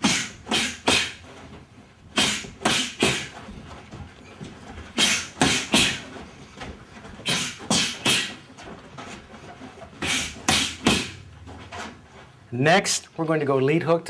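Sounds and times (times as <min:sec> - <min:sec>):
sharp exhales: 0:00.0 - 0:01.2, 0:02.2 - 0:03.4, 0:05.0 - 0:06.0, 0:07.2 - 0:08.4, 0:10.0 - 0:11.1
boxing gloves punching: 0:00.0 - 0:08.5, 0:09.8 - 0:11.2.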